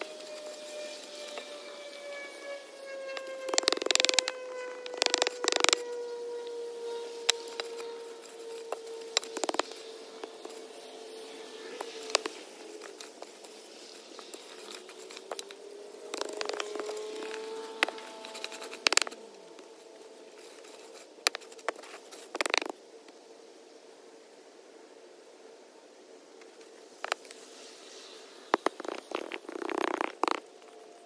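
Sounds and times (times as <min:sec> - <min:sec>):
faint wavering hum: 0:00.0 - 0:22.1.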